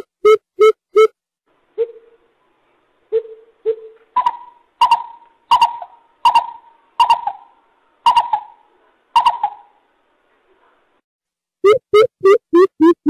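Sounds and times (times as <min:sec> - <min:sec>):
bird low stuttering hoots: 0:03.1 - 0:08.6, 0:09.2 - 0:09.8.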